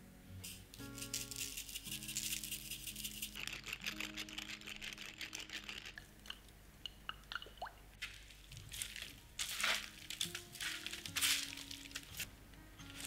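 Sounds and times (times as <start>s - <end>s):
tofu crumbling and squishing: 8.0s - 12.3s.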